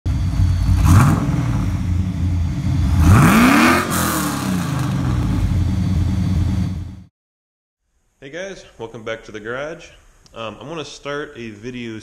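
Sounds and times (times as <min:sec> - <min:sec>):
car engine revving: 0:00.1 - 0:07.1.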